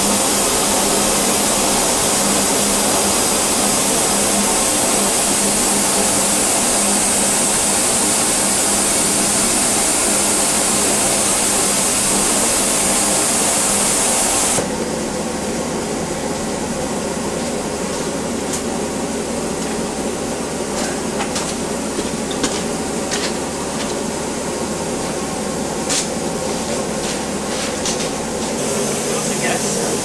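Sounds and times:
steam locomotive hissing: 0:00.0 - 0:14.6, 0:28.6 - 0:30.0.

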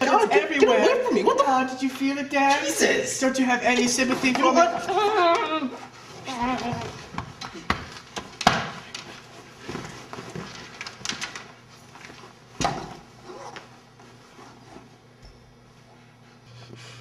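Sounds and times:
rustling of people moving: 0:00.0 - 0:16.8.

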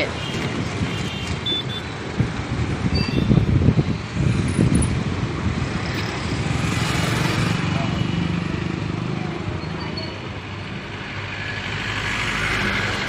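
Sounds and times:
street traffic: 0:00.0 - 0:13.0
wind buffeting microphone: 0:00.4 - 0:01.1, 0:02.0 - 0:07.6
motorbike running: 0:04.2 - 0:09.6.

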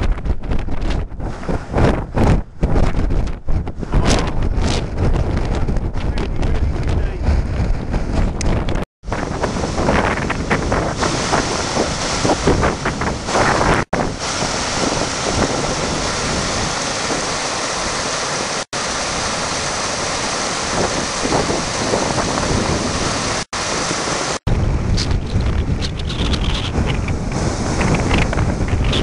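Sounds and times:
wind buffeting microphone: 0:00.0 - 0:29.0
stream cascading over rocks: 0:09.0 - 0:24.4.

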